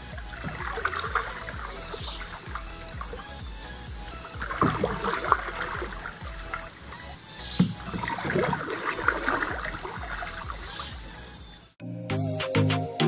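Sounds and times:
paddle splashing in water: 4.2s - 6.7s, 7.6s - 10.8s.

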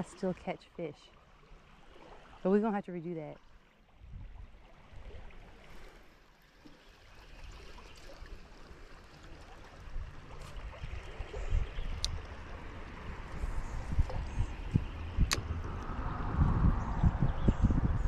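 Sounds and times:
creek water running over stones: 0.0s - 15.9s
low rumble: 10.0s - 18.0s
sharp click: 15.3s - 15.5s.

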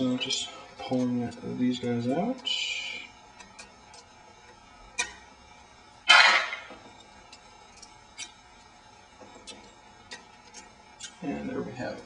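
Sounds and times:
small metal clicks and ticks: 3.4s - 5.2s, 7.2s - 8.4s, 9.4s - 11.2s.

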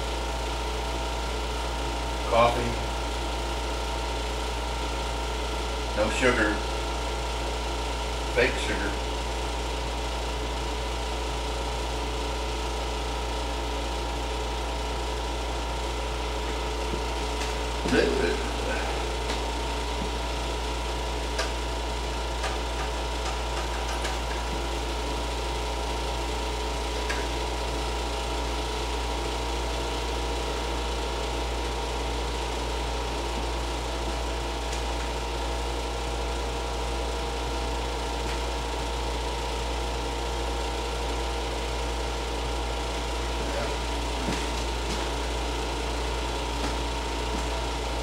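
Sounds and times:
air conditioner humming: 0.0s - 48.0s.

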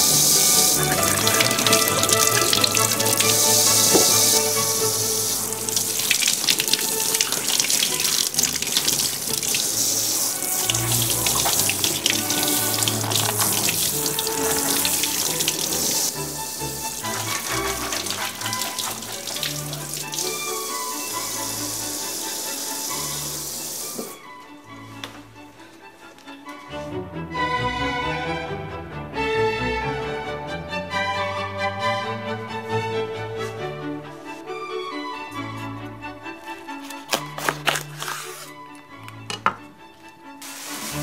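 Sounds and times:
background music: 0.0s - 41.0s
tap water splashing in sink: 0.3s - 24.2s, 40.4s - 41.0s.

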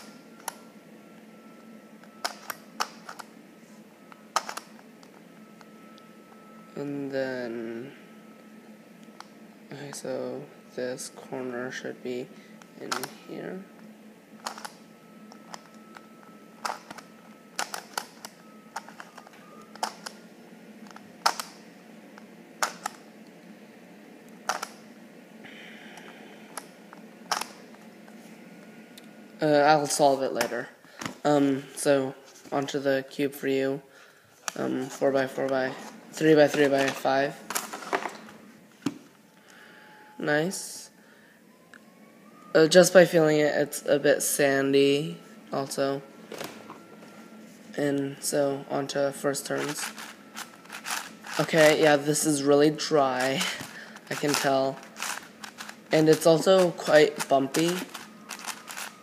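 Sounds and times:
puzzle cube clicking: 17.6s - 20.2s, 49.8s - 51.8s, 53.2s - 59.0s.

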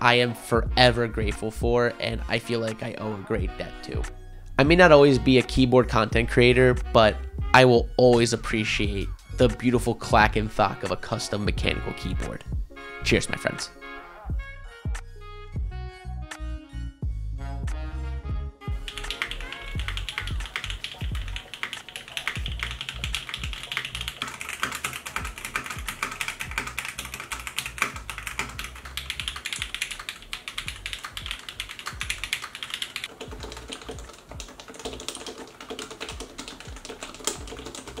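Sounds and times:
mechanical keyboard keystrokes clacking: 18.9s - 38.0s.

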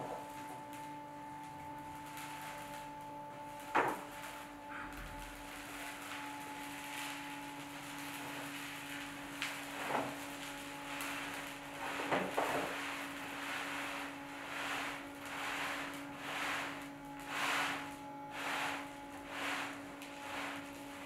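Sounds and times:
motor humming: 0.0s - 21.0s
litter scraping and sliding: 7.9s - 21.0s.

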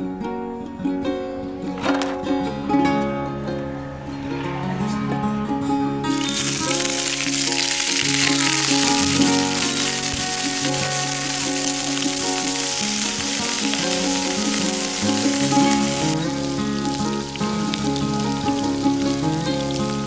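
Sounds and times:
background music: 0.0s - 20.0s
tofu sizzling in hot oil: 6.1s - 20.0s.

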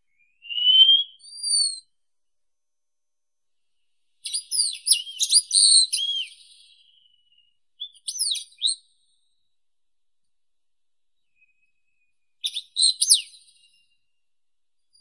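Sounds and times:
bird singing high whistles: 0.1s - 1.9s, 4.2s - 8.9s, 11.3s - 14.0s.

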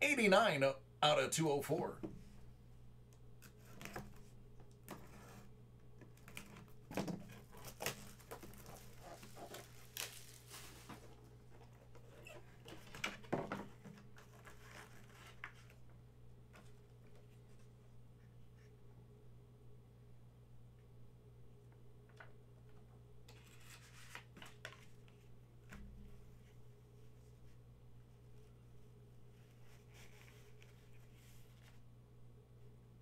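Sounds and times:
wrappers rustling and tearing: 7.4s - 11.2s.

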